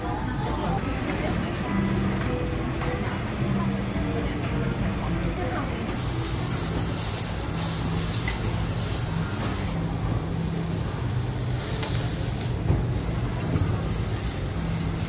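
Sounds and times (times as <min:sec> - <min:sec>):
food sizzling on hotplate: 0:06.0 - 0:15.0.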